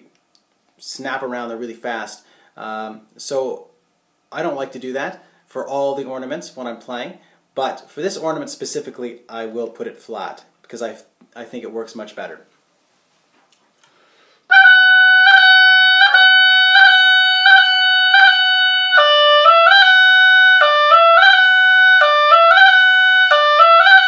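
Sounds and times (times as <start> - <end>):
oboe playing ornamented notes: 14.5 - 24.0.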